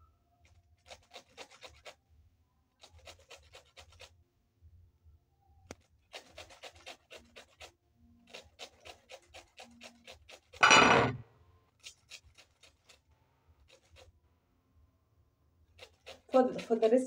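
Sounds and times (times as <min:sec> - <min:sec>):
grating on metal grater: 0:00.8 - 0:02.0, 0:02.8 - 0:04.1, 0:06.1 - 0:10.6, 0:11.8 - 0:14.2, 0:15.7 - 0:17.0.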